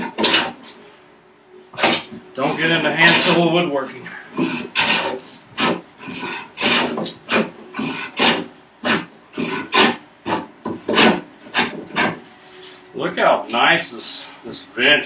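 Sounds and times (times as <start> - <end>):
hand plane shaving wood: 0.0 - 0.6, 1.8 - 3.4, 4.4 - 12.2.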